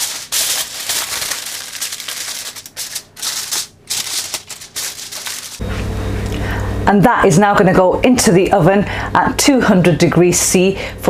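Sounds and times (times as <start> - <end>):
aluminium foil crinkling: 0.0 - 5.6.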